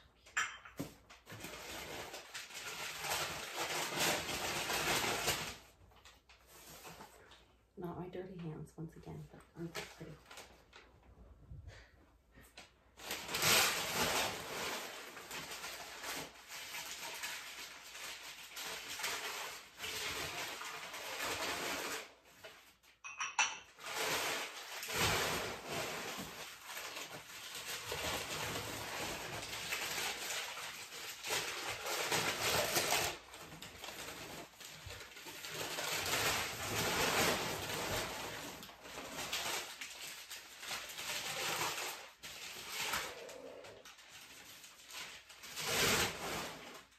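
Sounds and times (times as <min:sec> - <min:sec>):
glass clinking: 0:00.3 - 0:00.8, 0:23.0 - 0:23.7
packing paper rustling: 0:00.8 - 0:07.4, 0:12.5 - 0:23.0, 0:23.8 - 0:46.9.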